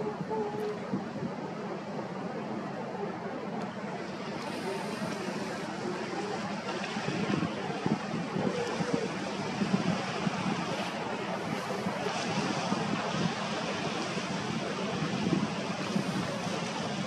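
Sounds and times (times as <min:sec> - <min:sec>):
wind buffeting microphone: 0:00.0 - 0:17.0
waves breaking on rocks: 0:03.5 - 0:17.0.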